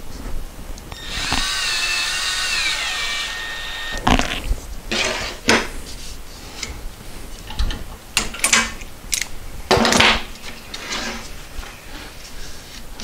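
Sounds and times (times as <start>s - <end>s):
tools and wood handled on workbench: 3.9s - 6.8s, 7.4s - 12.9s.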